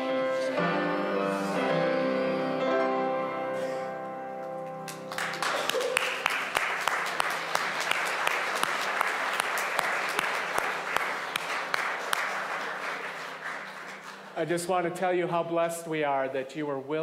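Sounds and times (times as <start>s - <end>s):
congregation applauding: 4.8s - 14.7s.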